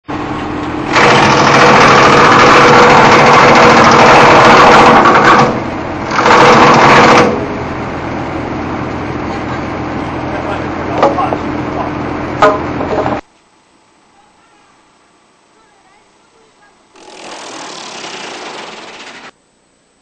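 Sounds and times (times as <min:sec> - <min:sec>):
wood chipper humming: 0:00.1 - 0:12.5, 0:16.9 - 0:19.4
wood chipper chipping wood: 0:00.6 - 0:07.6, 0:16.9 - 0:19.3.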